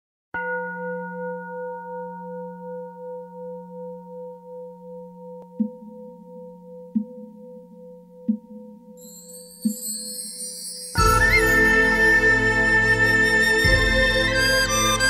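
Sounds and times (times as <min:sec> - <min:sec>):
singing bowl ringing: 0:00.4 - 0:11.2.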